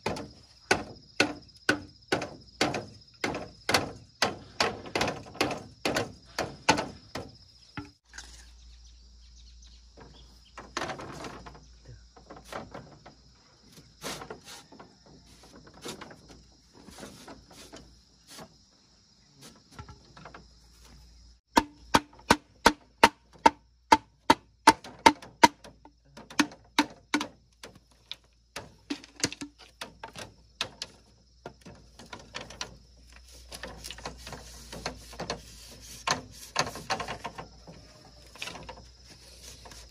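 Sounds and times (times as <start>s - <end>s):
hatchet chopping bamboo: 0.0s - 8.0s, 21.5s - 31.0s.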